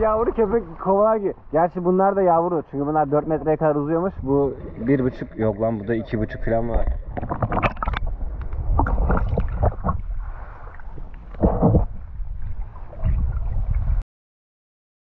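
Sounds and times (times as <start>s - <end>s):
water sloshing and splashing: 2.3s - 14.0s
wind on microphone: 3.3s - 14.0s.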